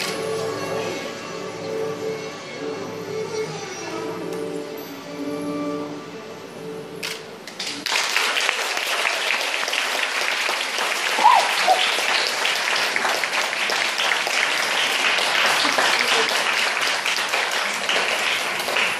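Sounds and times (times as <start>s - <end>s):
audience clapping: 7.5s - 18.9s
rising-and-falling cry: 11.1s - 12.0s.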